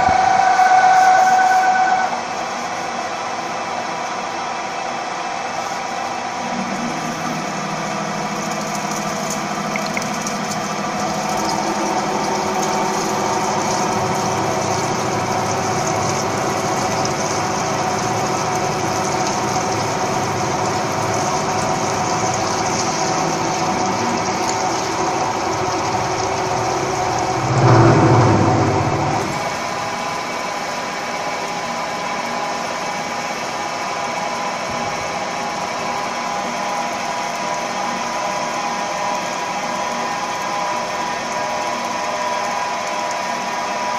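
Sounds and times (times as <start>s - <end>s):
constant machine hums: 0.0s - 43.9s
drilling machine drone: 0.0s - 43.9s
low machine surge: 6.1s - 8.7s, 23.2s - 30.2s.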